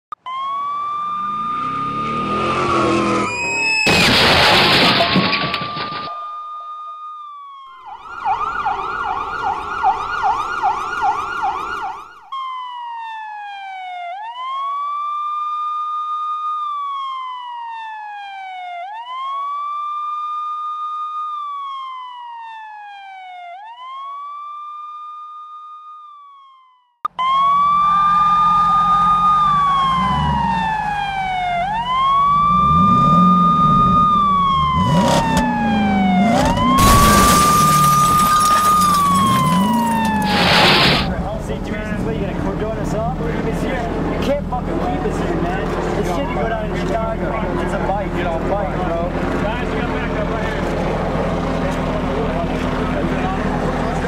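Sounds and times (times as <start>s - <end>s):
police siren yelp and wail: 0.2s - 41.3s, 42.9s - 54.0s
vehicle engine and road noise: 0.9s - 4.7s, 27.3s - 54.0s.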